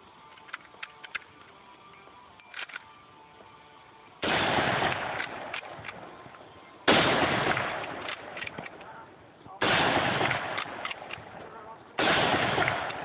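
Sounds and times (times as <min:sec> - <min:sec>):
rifle bolt clicks: 0:00.3 - 0:01.6, 0:02.4 - 0:02.9, 0:04.9 - 0:06.4, 0:07.5 - 0:08.9, 0:10.2 - 0:13.0
rifle shots echoing: 0:04.2 - 0:13.0.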